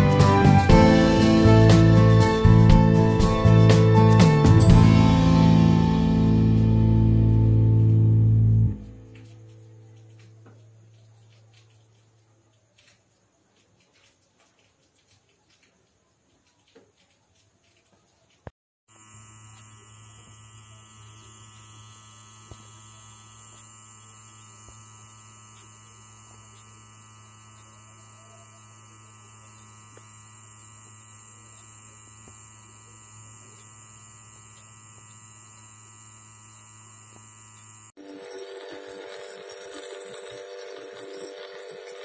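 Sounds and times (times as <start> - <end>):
electrical hum: 18.9 - 42.0.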